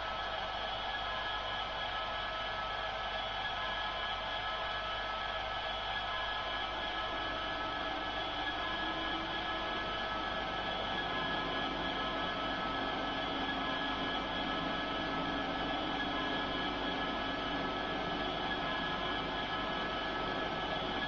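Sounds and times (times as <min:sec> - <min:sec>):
model locomotive engine drone: 0:00.0 - 0:21.0.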